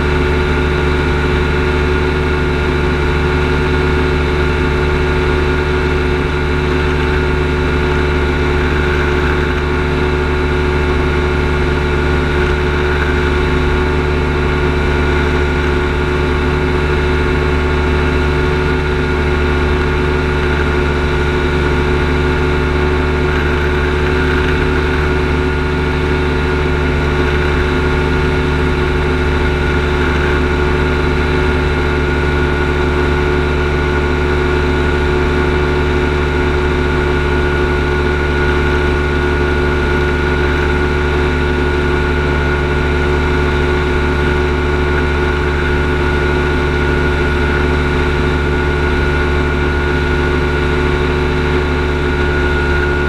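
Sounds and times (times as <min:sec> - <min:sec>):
ultralight engine and propeller drone: 0:00.0 - 0:53.0.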